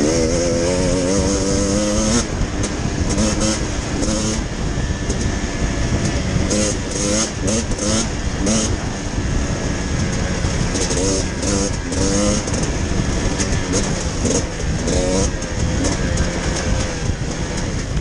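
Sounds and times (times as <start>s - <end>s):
dirt bike engine revving: 0.0s - 18.0s
noisy rush: 0.0s - 18.0s.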